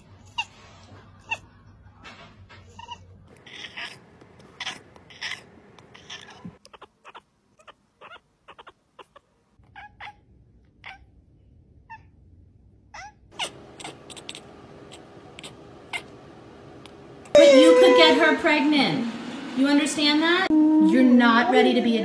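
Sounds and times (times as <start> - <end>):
cats chattering: 2.6 - 10.2, 12.9 - 16.2.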